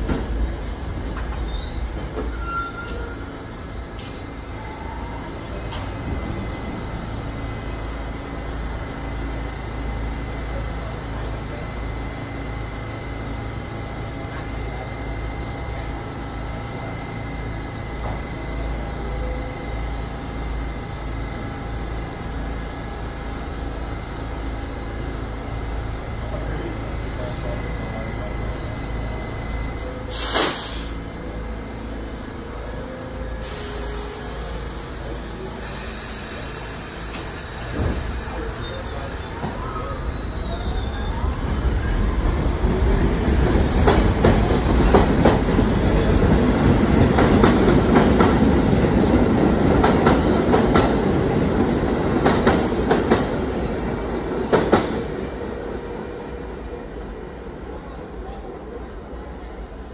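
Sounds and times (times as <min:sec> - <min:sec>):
train equipment low hum: 0:00.0 - 0:59.9
air brakes hissing: 0:27.2 - 0:27.7, 0:29.7 - 0:31.1, 0:33.3 - 0:41.3.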